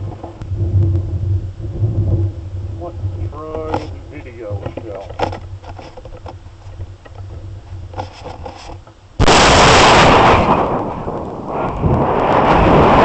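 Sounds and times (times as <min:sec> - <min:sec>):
faint rumble in barrel: 0:00.0 - 0:09.0
rushing air: 0:07.4 - 0:13.0
air cannon blast: 0:09.2 - 0:13.0.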